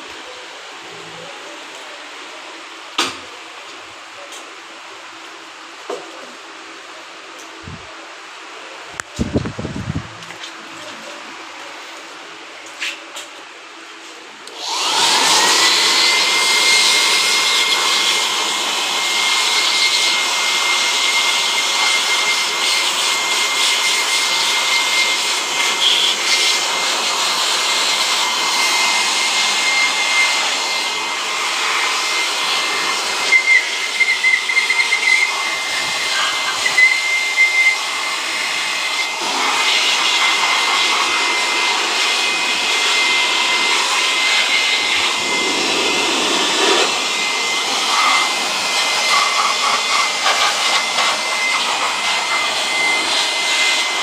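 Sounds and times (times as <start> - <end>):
electric air blower whining: 8.9 - 54.0
rush of air: 9.1 - 10.2, 44.5 - 51.8.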